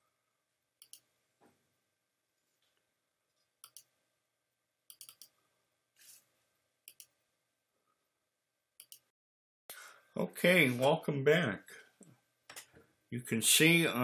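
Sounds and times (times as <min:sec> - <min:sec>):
computer mouse clicks: 0:00.8 - 0:01.1, 0:03.6 - 0:03.9, 0:04.9 - 0:05.4, 0:06.9 - 0:07.2, 0:08.8 - 0:09.1.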